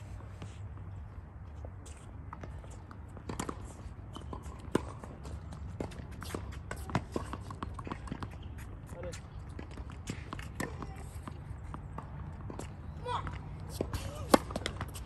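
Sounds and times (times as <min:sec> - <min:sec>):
racket hitting tennis ball: 0:03.2 - 0:08.3, 0:09.5 - 0:15.0.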